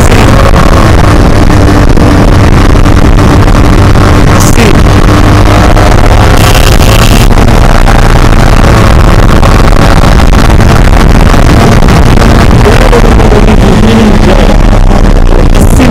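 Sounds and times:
motorcycle engine cruising: 0.0s - 15.9s.

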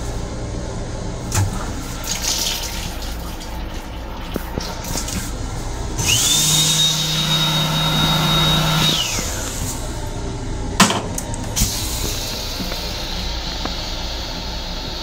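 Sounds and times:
small electric motor whining: 6.0s - 9.8s
toilet seat clack: 10.8s - 11.3s.

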